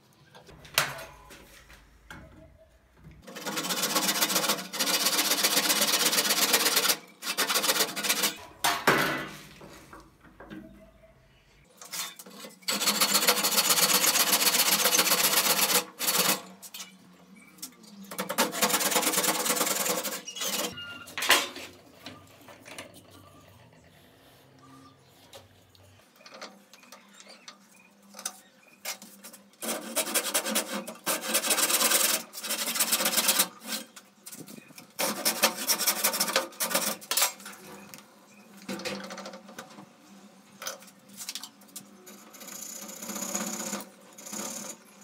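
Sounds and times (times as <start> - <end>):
hand saw cutting wood: 29.6 - 33.9.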